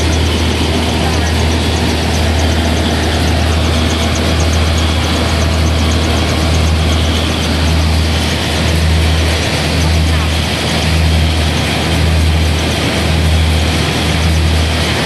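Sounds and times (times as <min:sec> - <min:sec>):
fast light ticking: 0:00.0 - 0:14.8
rice milling machine humming: 0:00.0 - 0:15.0.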